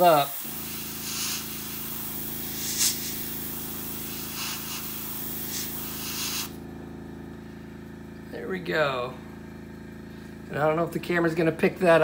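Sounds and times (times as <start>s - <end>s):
airbrush hissing: 0.0s - 6.6s
short bursts of air: 0.0s - 6.7s
steady low hum: 0.0s - 12.0s.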